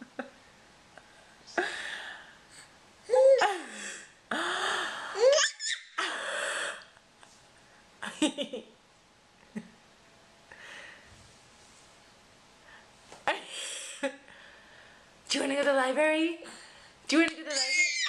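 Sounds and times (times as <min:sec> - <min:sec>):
baby gasping and squealing laughs: 0:05.2 - 0:06.0, 0:17.5 - 0:18.0.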